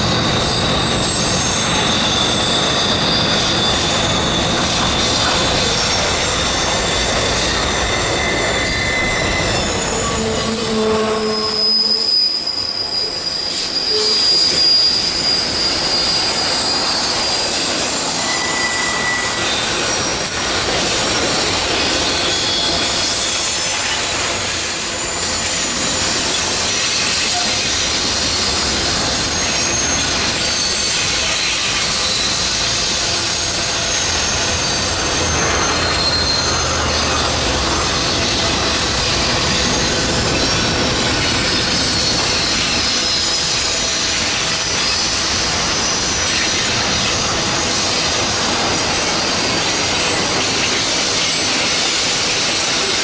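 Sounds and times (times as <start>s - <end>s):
train cars rumbling and clattering: 0.0s - 53.0s
train wheels squealing: 0.0s - 53.0s.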